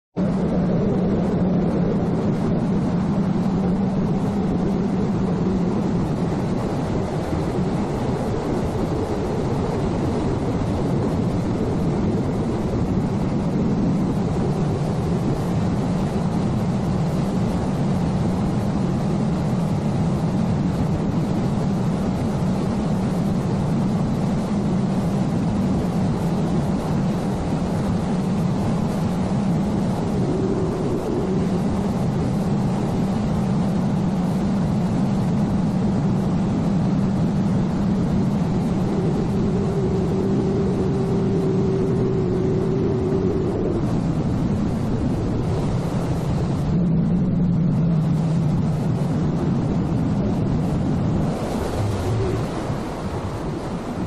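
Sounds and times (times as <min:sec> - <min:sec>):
wind: 0:00.1 - 0:54.0
rushing water: 0:24.6 - 0:54.0.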